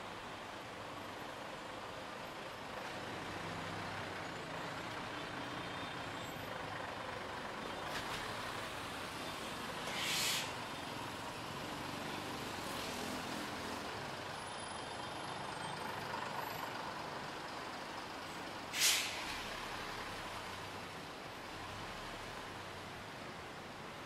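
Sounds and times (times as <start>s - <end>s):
street traffic rumble: 0.0s - 24.0s
air brakes hissing: 9.8s - 10.6s, 18.7s - 19.4s.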